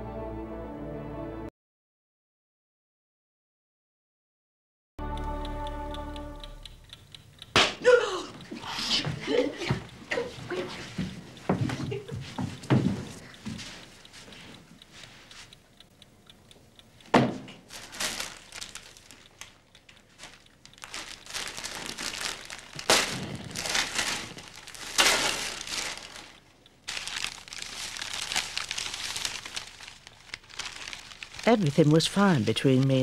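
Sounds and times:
wrapping paper tearing and crumpling: 0:17.7 - 0:33.0.

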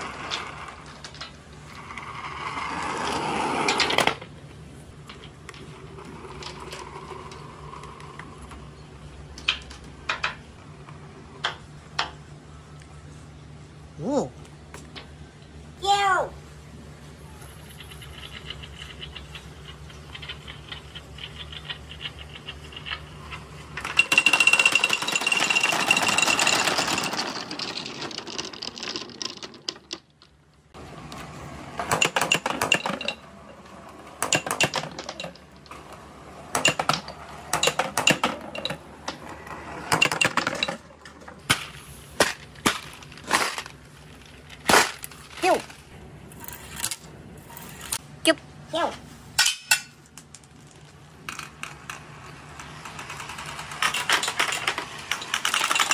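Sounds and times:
marbles clicking and clinking: 0:17.6 - 0:30.7, 0:31.9 - 0:45.8, 0:50.0 - 0:55.9
marbles rattling through plastic tube: 0:17.8 - 0:30.7, 0:50.3 - 0:55.9.

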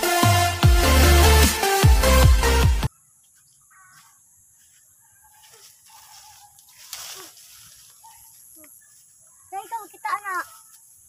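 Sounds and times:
leaves rustling: 0:03.9 - 0:11.0.

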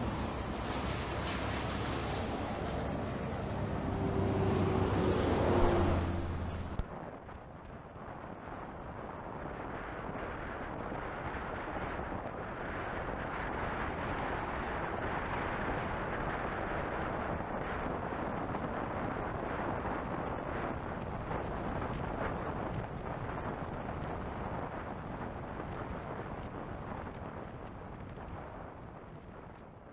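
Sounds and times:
car road noise: 0:00.0 - 0:06.9
wind rushing over microphone: 0:00.0 - 0:29.9.

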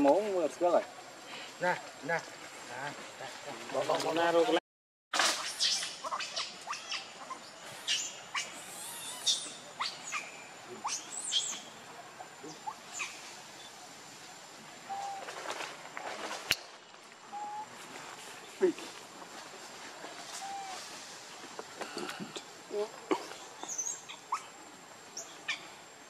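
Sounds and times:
faint steady high whine: 0:05.5 - 0:26.0
birds chirping: 0:05.6 - 0:15.3, 0:20.4 - 0:25.8.

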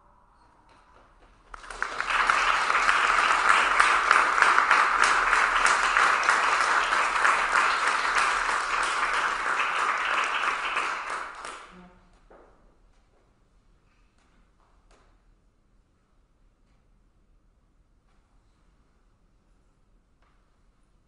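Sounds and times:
audience applauding: 0:01.4 - 0:11.8.

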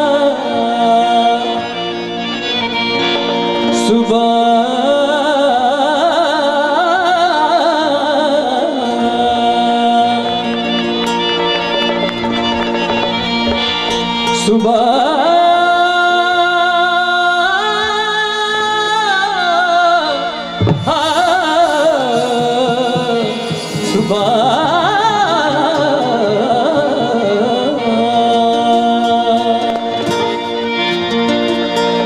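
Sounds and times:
man singing: 0:00.0 - 0:11.0, 0:14.2 - 0:30.9
harmonium: 0:00.0 - 0:32.0
dholak drum: 0:10.9 - 0:14.6, 0:20.5 - 0:28.0.

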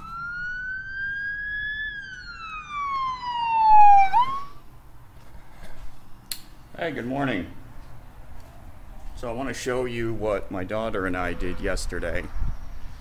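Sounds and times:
siren wail: 0:00.0 - 0:04.7.

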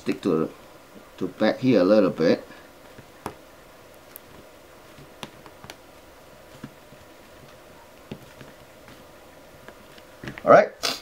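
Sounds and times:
faint sharp clicks and taps: 0:02.8 - 0:05.8, 0:06.5 - 0:10.5.

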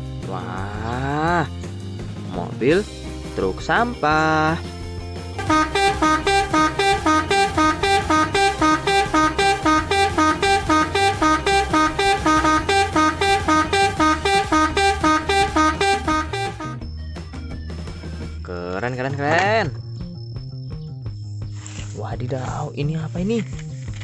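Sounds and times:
rapid electronic beeping: 0:05.4 - 0:16.8.

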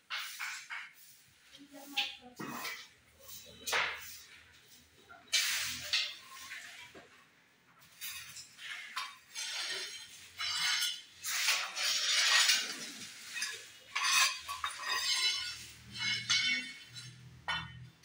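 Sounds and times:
trowel scraping mortar: 0:05.2 - 0:07.0, 0:08.0 - 0:17.6
ceramic tile pieces clinking: 0:07.9 - 0:18.0.

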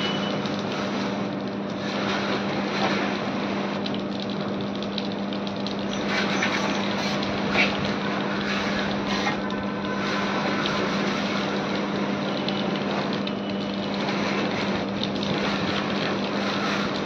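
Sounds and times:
steady motor hum: 0:00.0 - 0:17.0.

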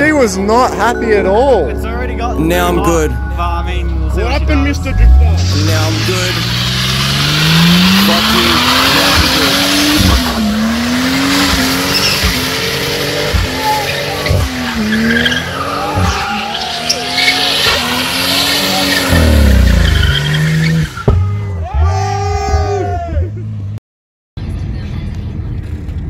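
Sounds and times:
car engine revving: 0:00.0 - 0:21.5
tyres squealing: 0:05.4 - 0:21.5.

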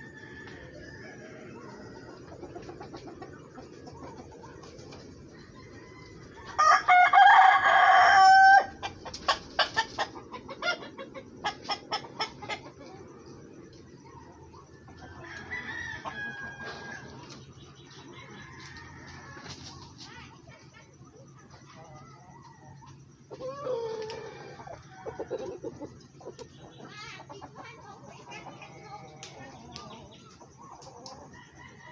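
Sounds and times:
rooster crowing: 0:00.0 - 0:02.2, 0:05.3 - 0:08.8, 0:15.0 - 0:17.3, 0:17.9 - 0:19.6, 0:21.8 - 0:25.8, 0:31.3 - 0:31.9
chickens clucking: 0:00.0 - 0:31.9.

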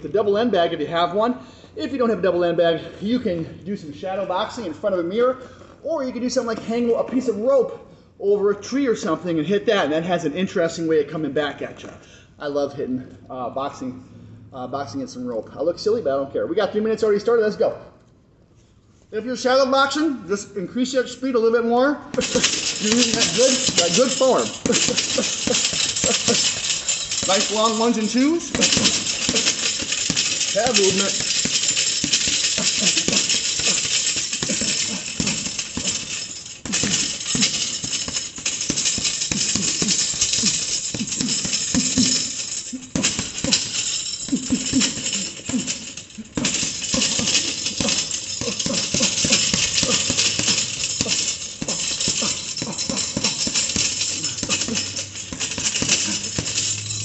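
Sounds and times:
gloves punching a speed bag: 0:22.2 - 0:57.0.

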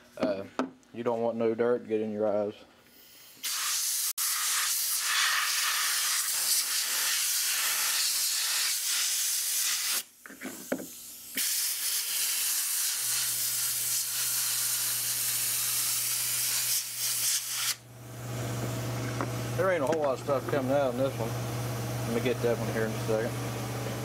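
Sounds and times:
compressed air hissing: 0:02.9 - 0:17.8.

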